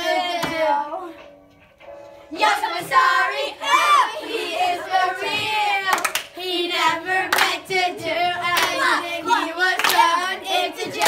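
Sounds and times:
boys singing together: 0.0 - 1.0, 2.4 - 11.0
hand claps: 5.9 - 6.4, 9.8 - 10.1.

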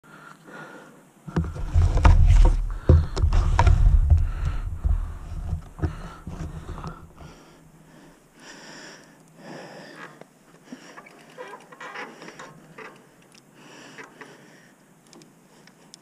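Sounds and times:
wind buffeting microphone: 1.3 - 7.2
bike tyres rumbling on wooden slats: 1.3 - 7.4.

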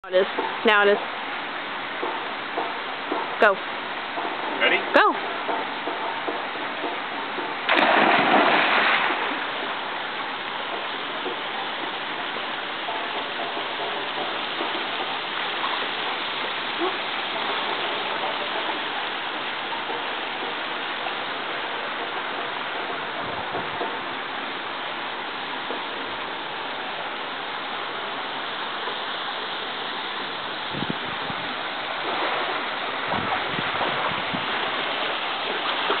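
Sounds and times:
water rushing over pool edge: 0.0 - 36.0
person splashing into pool: 7.7 - 9.5.

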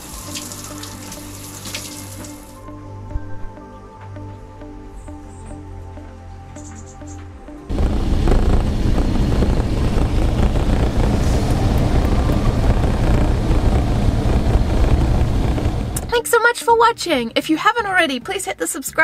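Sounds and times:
vehicle engine and road rumble: 7.7 - 16.2.

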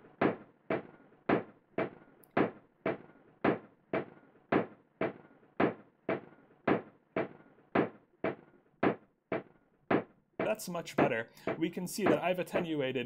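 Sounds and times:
percussive knocks: 0.2 - 12.8.

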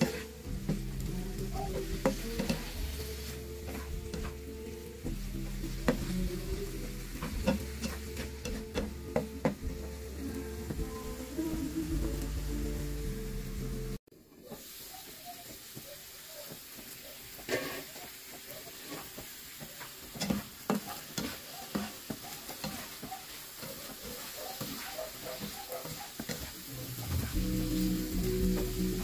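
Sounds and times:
spatula scraping and tapping pan: 0.0 - 10.0, 15.5 - 27.4
background music: 0.0 - 14.0, 26.8 - 29.0
food sizzling in frying pan: 0.0 - 29.0.

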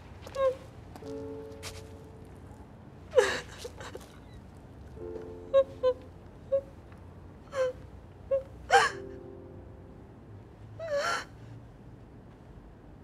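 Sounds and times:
soft held music chord: 0.5 - 3.6, 4.7 - 12.2
woman sobbing: 3.1 - 4.2, 5.4 - 6.7, 7.5 - 9.2, 10.8 - 11.4.

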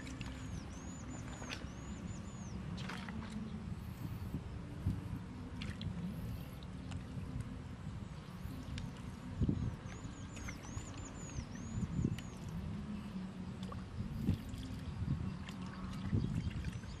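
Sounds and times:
wet squelching and trickling: 0.0 - 1.8, 2.8 - 4.1, 15.4 - 17.0.

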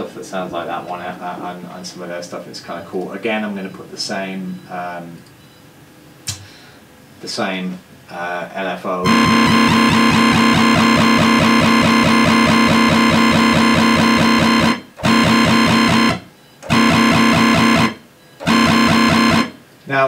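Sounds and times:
synthesizer wobble bass: 9.1 - 19.6.

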